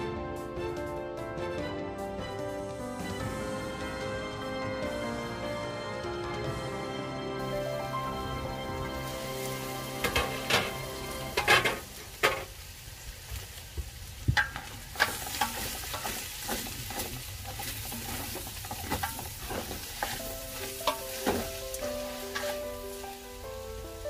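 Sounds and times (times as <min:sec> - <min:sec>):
vegetables sizzling: 0:07.1 - 0:24.0
utensil scraping metal pot: 0:14.4 - 0:22.8.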